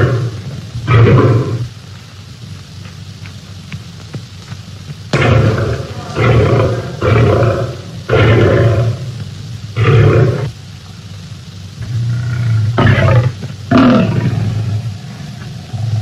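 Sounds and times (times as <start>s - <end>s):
big cat roaring: 0.0s - 1.7s, 5.1s - 9.2s, 9.8s - 10.5s, 11.8s - 16.0s.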